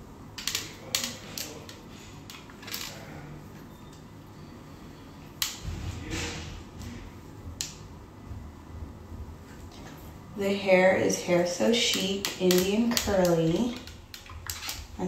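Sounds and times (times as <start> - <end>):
hair crimper plates clicking: 11.7 - 15.0.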